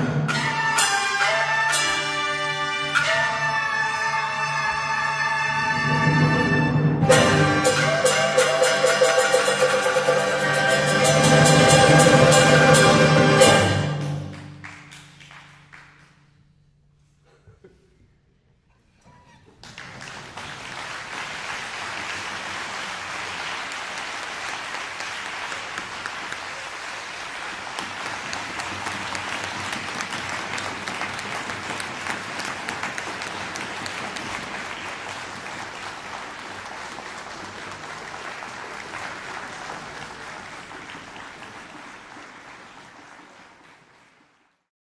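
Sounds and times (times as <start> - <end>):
audience applauding: 7.7 - 16.3, 19.2 - 44.7.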